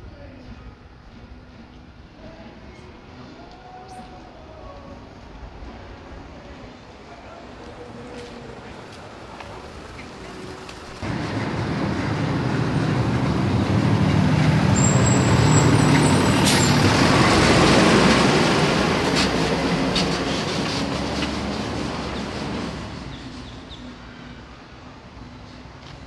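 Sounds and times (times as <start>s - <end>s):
large engine running: 9.5s - 23.5s.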